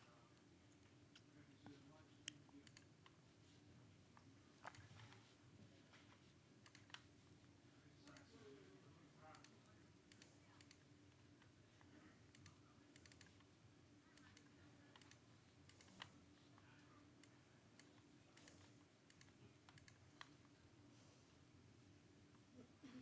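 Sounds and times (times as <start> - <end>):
faint steady hum: 0.0 - 23.0
irregular clicks and taps: 5.9 - 7.1.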